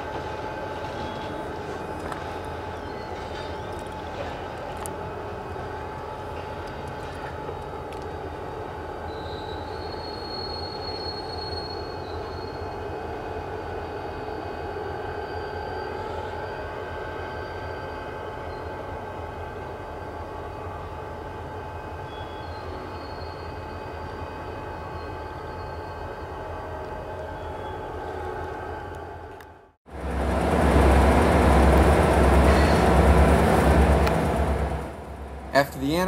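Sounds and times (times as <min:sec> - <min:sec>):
train wheels rumbling on rail: 0:00.0 - 0:36.0
high wheel squeals: 0:09.1 - 0:12.8, 0:22.1 - 0:26.6, 0:32.4 - 0:33.0.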